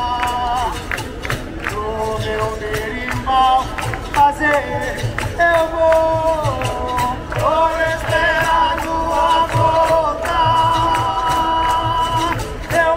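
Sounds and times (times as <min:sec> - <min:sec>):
percussion beat: 0:00.0 - 0:12.9
voices singing held notes: 0:00.0 - 0:12.9.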